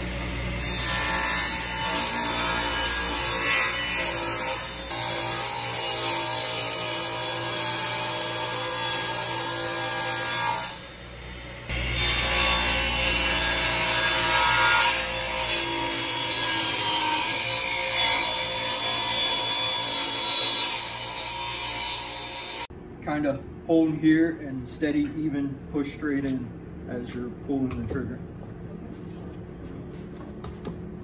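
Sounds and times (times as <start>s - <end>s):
table saw cutting wood: 0.0s - 22.7s.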